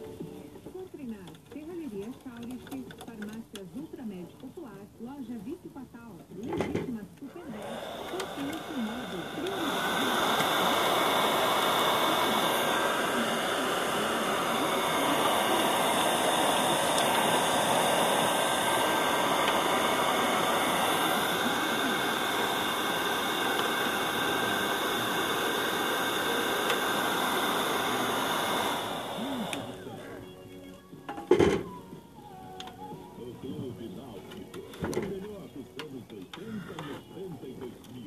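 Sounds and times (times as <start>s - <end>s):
loud rush of blown air: 7.6s - 30.0s.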